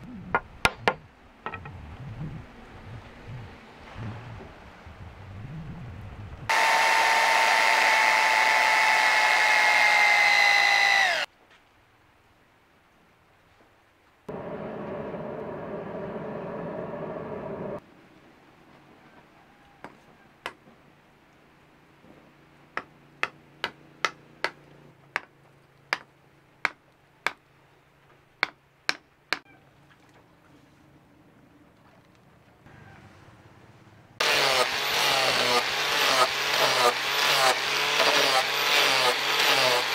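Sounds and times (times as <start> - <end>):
forge air blower: 6.5 - 11.3, 14.3 - 17.8, 34.2 - 39.9.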